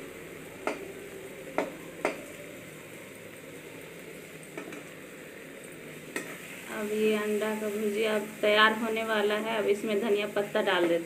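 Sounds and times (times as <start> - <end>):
eggs sizzling: 0.0 - 11.0
spatula scraping a pan: 6.1 - 6.7.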